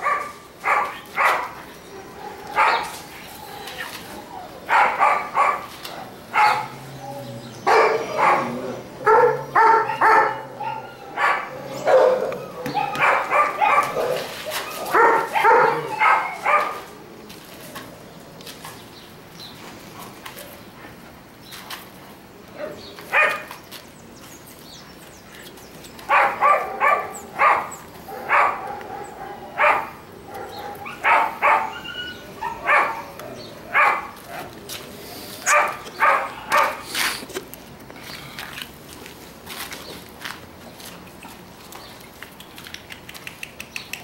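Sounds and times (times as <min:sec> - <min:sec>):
puppy play barks: 0:00.0 - 0:01.6, 0:04.7 - 0:06.8, 0:07.7 - 0:16.9, 0:26.1 - 0:34.5, 0:35.4 - 0:36.8.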